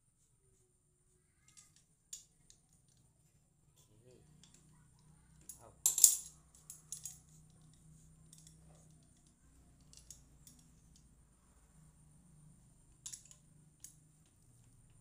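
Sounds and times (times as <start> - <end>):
small metal parts clinking: 5.4 - 11.1, 13.0 - 14.0.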